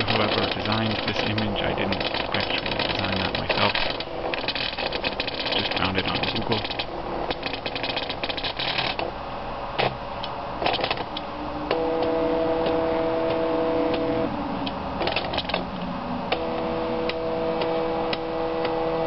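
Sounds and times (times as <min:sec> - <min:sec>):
plotter motors clicking and rattling: 0:00.0 - 0:09.2, 0:09.8 - 0:19.0
stepper motor whine: 0:10.6 - 0:19.0.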